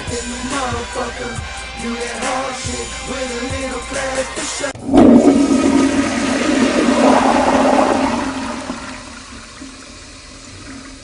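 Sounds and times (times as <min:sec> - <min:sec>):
rushing swirling water: 0:04.8 - 0:11.0.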